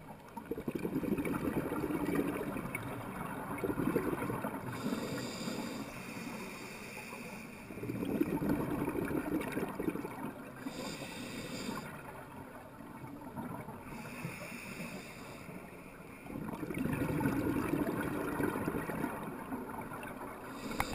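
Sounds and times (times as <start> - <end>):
exhaled bubbles rumbling: 0.0 - 5.5, 7.8 - 10.8, 16.3 - 20.9
regulator hissing inhales: 4.8 - 7.8, 10.6 - 12.0, 13.9 - 16.0, 20.6 - 20.9.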